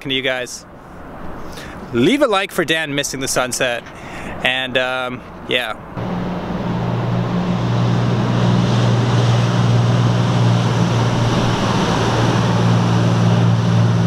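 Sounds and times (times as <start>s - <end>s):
boat motor humming: 5.3s - 14.0s
wind noise: 5.3s - 14.0s
water wash: 5.5s - 14.0s.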